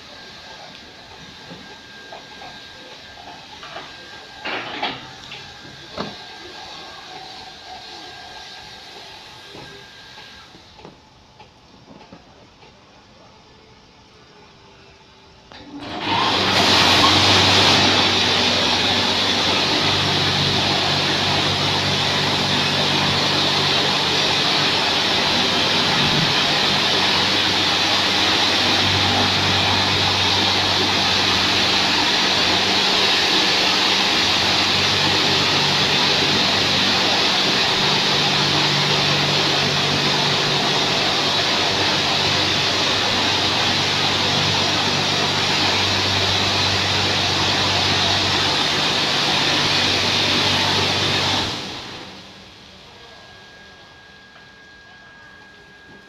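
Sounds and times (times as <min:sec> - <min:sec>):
low machine hum: 0:00.0 - 0:56.0
high-pressure water jets hissing: 0:15.9 - 0:52.1.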